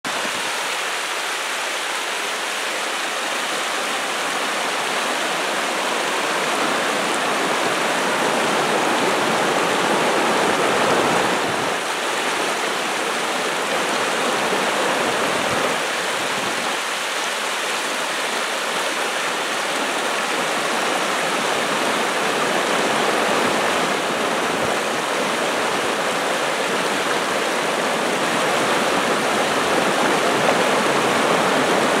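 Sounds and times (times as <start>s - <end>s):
river rushing over rocks: 0.1s - 32.0s.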